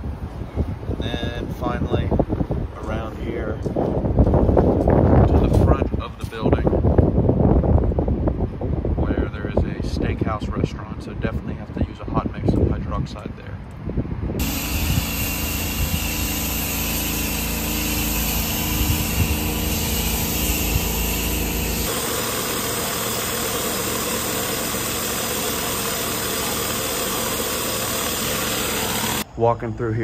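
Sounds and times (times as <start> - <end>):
engine running: 14.4 - 29.3.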